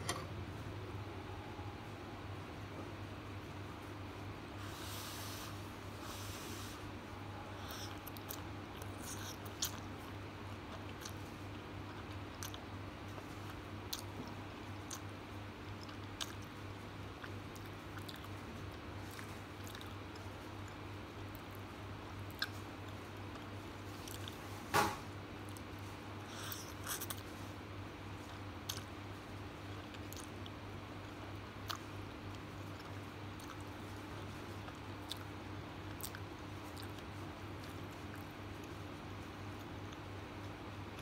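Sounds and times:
steady low hum: 0:00.0 - 0:41.0
chewing and slurping noodles: 0:25.5 - 0:27.3.

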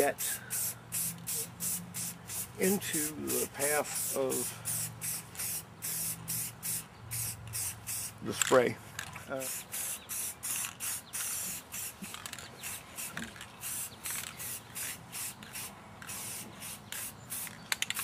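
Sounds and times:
spray paint can hissing: 0:00.0 - 0:08.2, 0:09.4 - 0:18.0.

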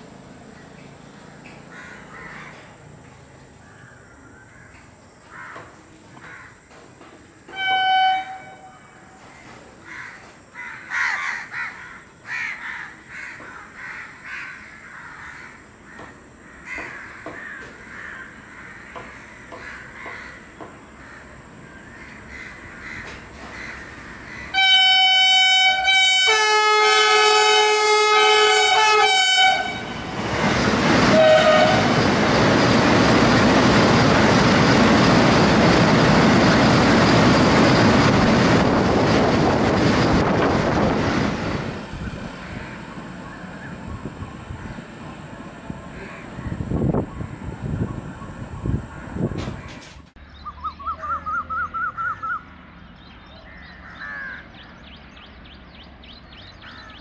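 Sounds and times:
train approaching: 0:00.0 - 0:49.6
crows cawing: 0:01.4 - 0:02.8, 0:03.6 - 0:06.9, 0:09.3 - 0:24.6, 0:42.4 - 0:43.7, 0:45.9 - 0:46.7, 0:53.5 - 0:54.6, 0:56.6 - 0:57.0
train horn: 0:07.5 - 0:09.3, 0:24.5 - 0:30.2, 0:31.0 - 0:32.1.

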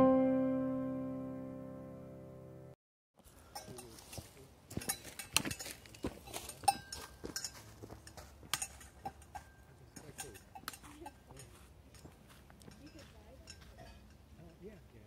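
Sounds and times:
footsteps on gravel: 0:03.2 - 0:09.0, 0:10.8 - 0:13.8.

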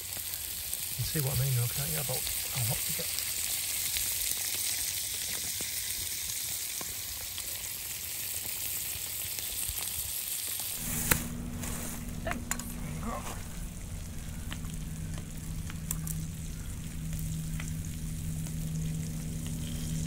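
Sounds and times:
faint crackles: 0:00.0 - 0:20.0
scallops sizzling in butter: 0:00.0 - 0:20.0
low rumble: 0:10.8 - 0:20.0.

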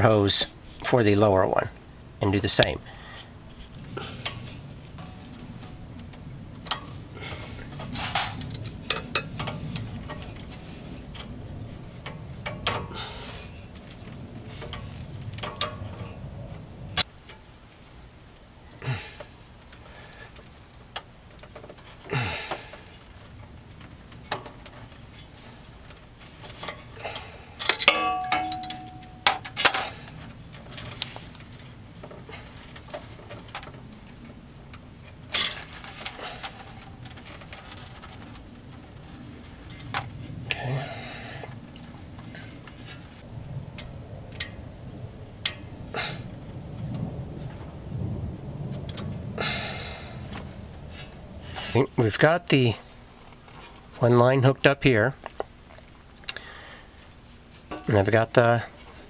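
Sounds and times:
low uneven rumble: 0:00.0 - 0:59.0
hand tools clicking and scraping: 0:04.0 - 0:11.4, 0:12.0 - 0:16.2, 0:19.2 - 0:34.1, 0:35.0 - 0:40.7, 0:57.6 - 0:58.2.

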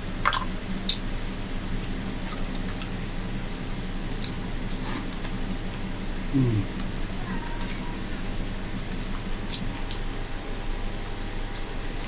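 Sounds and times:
steady low hum: 0:00.0 - 0:12.0
wet mouth sound: 0:06.4 - 0:06.9.

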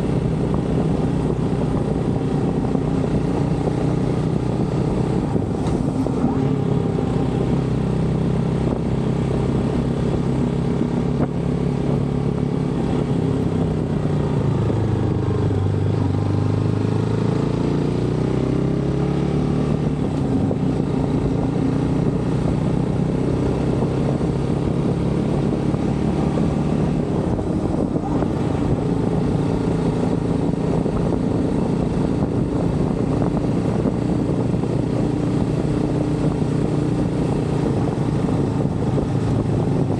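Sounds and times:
wind on microphone: 0:00.0 - 0:16.3, 0:19.6 - 0:39.9
motorcycle engine running: 0:00.0 - 0:39.9.

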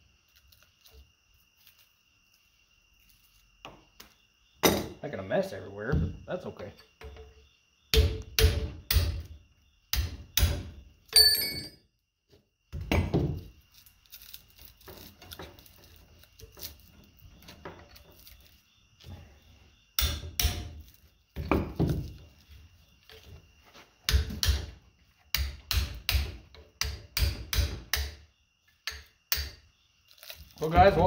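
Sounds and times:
metal knocks and clinks: 0:11.1 - 0:11.8.

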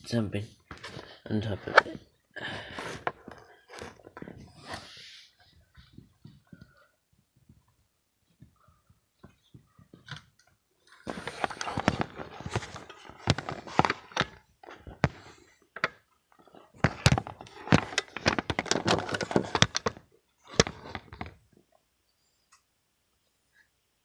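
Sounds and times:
handling noise rustling and knocking: 0:00.6 - 0:21.7.

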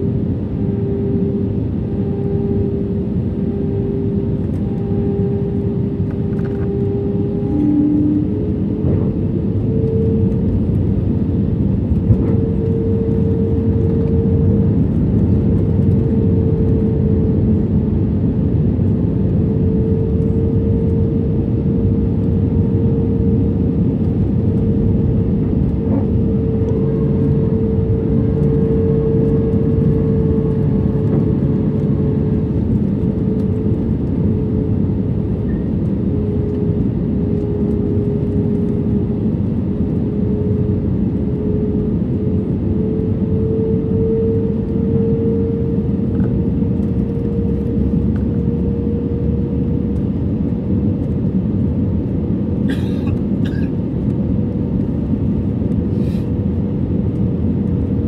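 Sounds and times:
engine tone rising in pitch: 0:00.0 - 0:18.6, 0:19.3 - 0:34.8, 0:40.1 - 0:49.8
airplane cabin airflow and engine drone: 0:00.0 - 0:58.0.

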